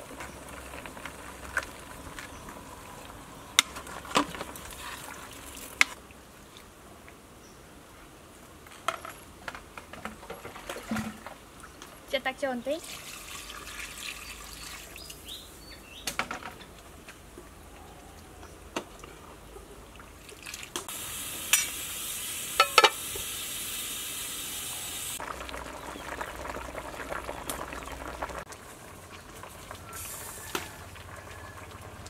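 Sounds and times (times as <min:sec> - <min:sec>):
pot bubbling and hissing: 0:00.0 - 0:06.0, 0:12.8 - 0:15.3, 0:18.7 - 0:32.0
water pouring from a jug: 0:12.8 - 0:15.1.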